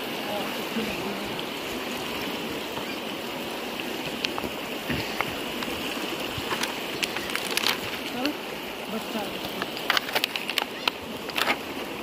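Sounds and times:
river rushing over rocks: 0.0 - 12.0
footsteps on loose stones: 4.1 - 8.1, 9.4 - 11.7.

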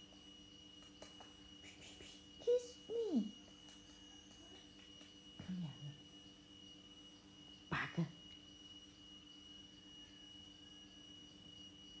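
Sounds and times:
faint high-pitched whine: 0.0 - 12.0.

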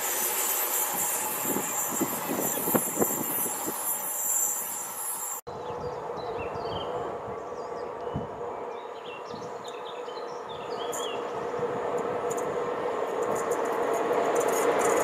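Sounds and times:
train rumbling hum: 0.0 - 15.0
birds chirping: 5.6 - 11.7.

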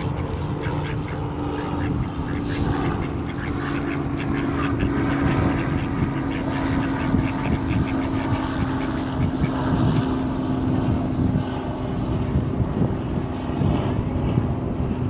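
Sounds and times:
ducks quacking: 0.0 - 10.2
low engine hum: 0.0 - 15.0.

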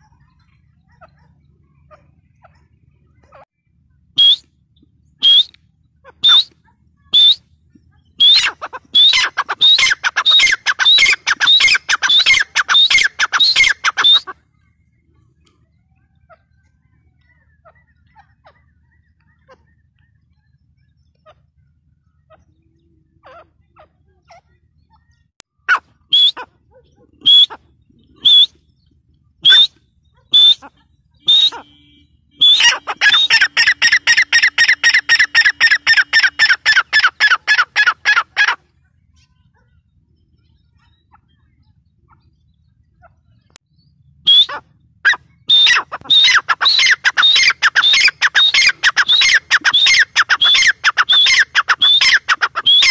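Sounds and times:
francolin calling: 5.2 - 7.4, 8.0 - 14.4, 27.2 - 28.6, 29.4 - 38.6, 44.3 - 52.9.

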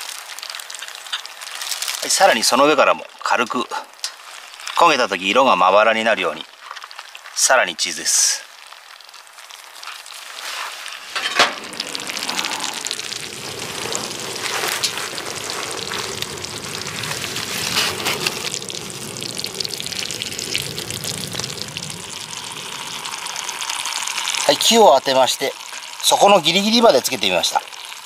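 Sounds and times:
cheese sizzling and popping: 0.0 - 28.0.

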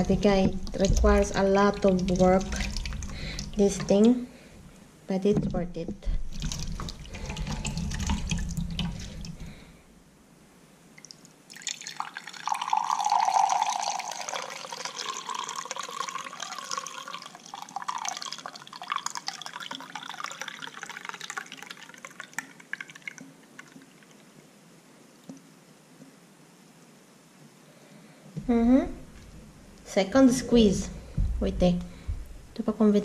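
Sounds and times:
liquid trickling into a glass: 0.0 - 3.9, 6.4 - 9.6, 11.5 - 24.3.

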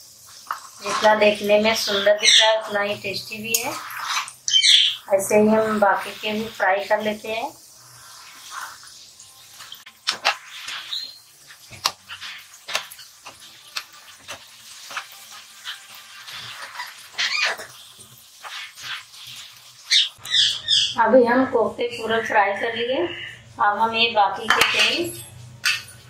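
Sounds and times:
oil sizzling and bubbling: 0.0 - 21.0
metal spatula scraping pan: 0.5 - 4.4, 10.1 - 17.8, 18.4 - 19.4.

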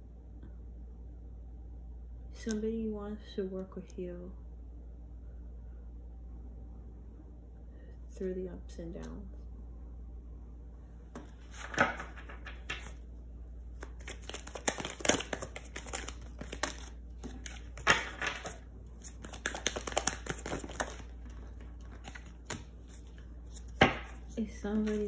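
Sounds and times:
cards rustling and tapping: 11.1 - 13.0, 13.8 - 25.0.

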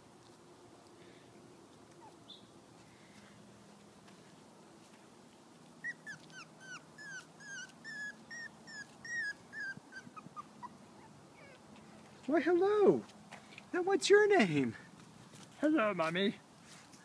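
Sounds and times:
puppy whimpering: 1.9 - 2.3, 5.8 - 11.6.

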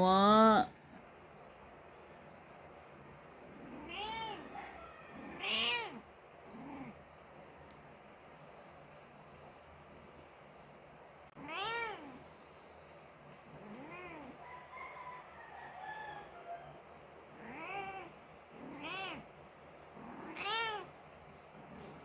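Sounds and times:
cat meowing: 3.6 - 6.0, 11.4 - 12.2, 17.4 - 19.2, 20.0 - 20.9.

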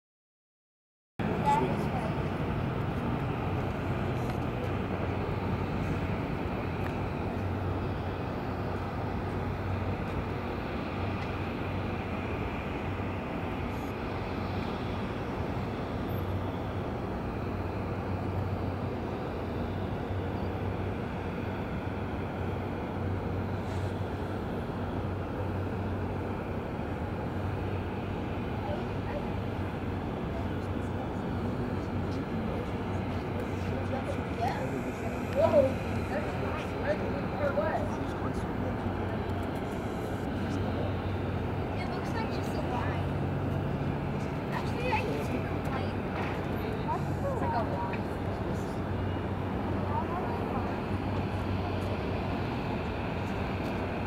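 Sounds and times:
distant jet engine rush: 1.2 - 54.0.

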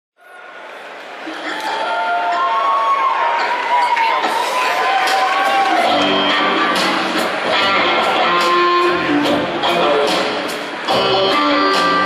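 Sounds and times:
electric guitar strumming: 5.8 - 12.0
upright bass: 5.9 - 12.0.

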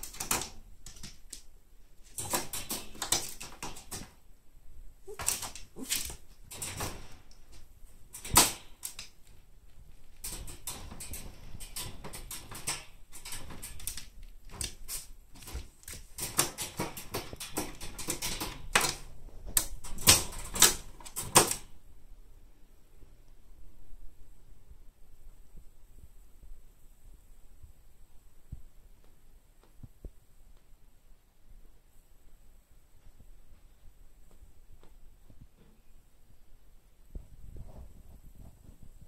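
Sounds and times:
wire pet cage rattling: 2.0 - 4.2, 5.1 - 9.2, 10.1 - 21.7.

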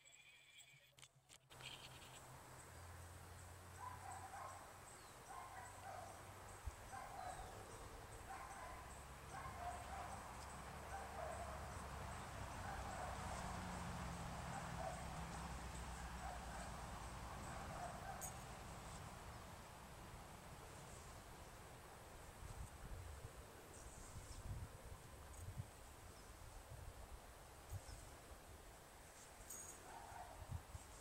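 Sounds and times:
distant dog barking: 3.8 - 6.3, 6.9 - 13.8, 14.4 - 18.4, 29.8 - 30.4.

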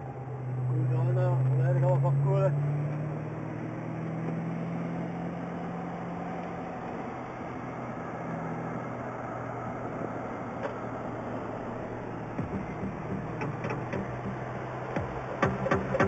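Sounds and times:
car engine droning: 0.0 - 16.0
road and wind noise: 0.0 - 16.0.

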